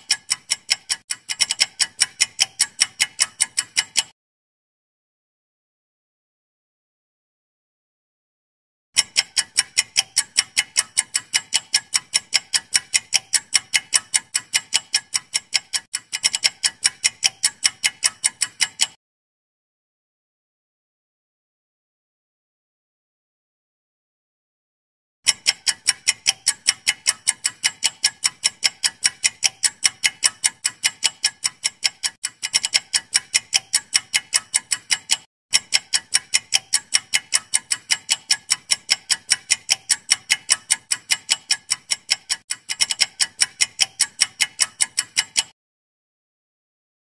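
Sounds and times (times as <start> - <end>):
fast clock ticks: 0.0 - 4.2, 9.0 - 19.0, 25.3 - 45.6.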